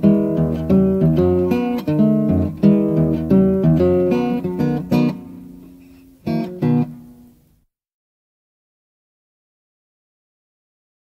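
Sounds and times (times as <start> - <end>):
acoustic guitar strumming chords: 0.0 - 7.6.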